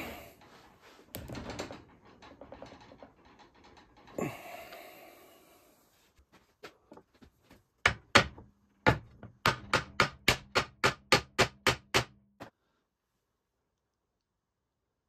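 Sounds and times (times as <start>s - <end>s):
hammer knocking on wooden block: 7.8s - 12.5s.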